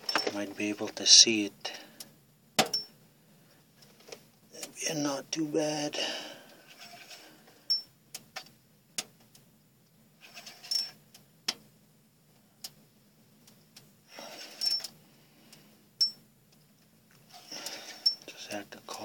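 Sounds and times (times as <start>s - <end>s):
rustles with high squeak: 6.7s - 7.4s, 10.2s - 11.0s, 14.1s - 14.9s.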